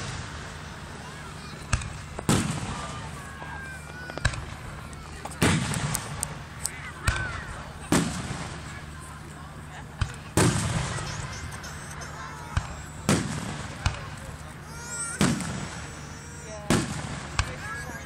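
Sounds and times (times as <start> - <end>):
firework cracks: 0.0 - 9.0, 9.8 - 18.0
firework booms: 1.6 - 3.4, 5.4 - 6.4, 7.0 - 8.8, 10.0 - 11.3, 12.5 - 14.2, 15.1 - 16.0, 16.6 - 17.6.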